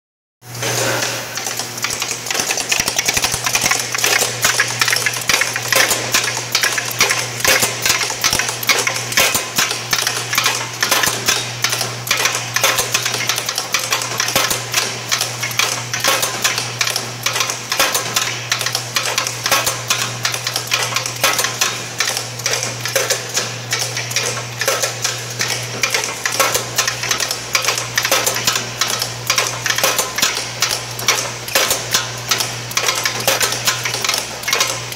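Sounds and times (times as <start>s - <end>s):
rapid clatter of machine parts: 0.6s - 34.9s.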